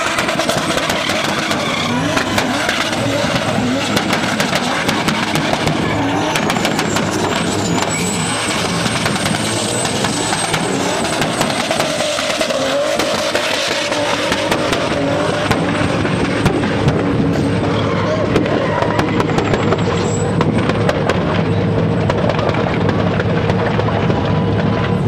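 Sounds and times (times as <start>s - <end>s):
engine at high revs: 0.0s - 25.0s
tyres squealing: 0.2s - 15.2s.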